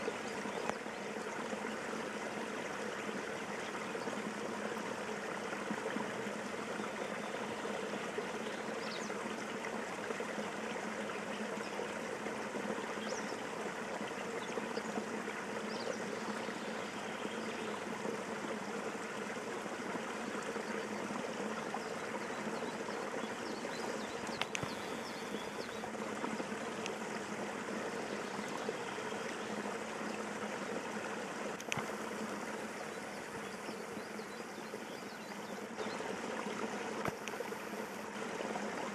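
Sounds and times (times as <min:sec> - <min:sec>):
water trickling through dam: 0:00.0 - 0:38.9
faint click: 0:00.6 - 0:00.8, 0:24.2 - 0:24.9, 0:26.8 - 0:27.0, 0:31.6 - 0:32.4, 0:37.0 - 0:37.5.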